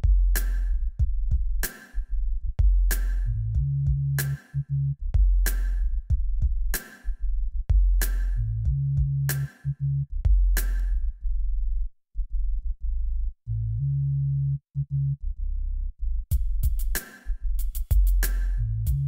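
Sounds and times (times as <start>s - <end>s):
drum-machine hits: 0.0s - 1.9s, 16.3s - 19.0s
deep synth bass line: 0.0s - 19.0s.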